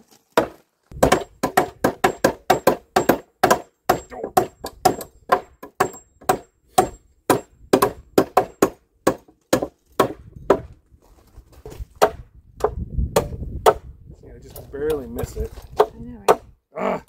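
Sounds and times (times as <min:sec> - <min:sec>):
hammers driving nails into wood: 0:00.4 - 0:10.7, 0:12.0 - 0:13.9.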